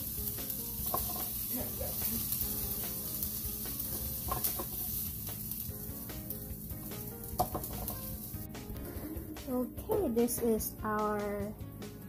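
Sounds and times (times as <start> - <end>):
meat sizzling on grill: 0.0 - 10.6.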